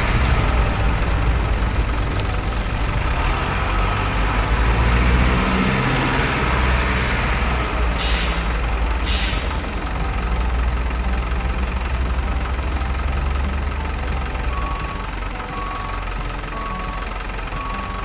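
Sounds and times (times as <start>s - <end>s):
model truck engine running: 0.0s - 18.0s.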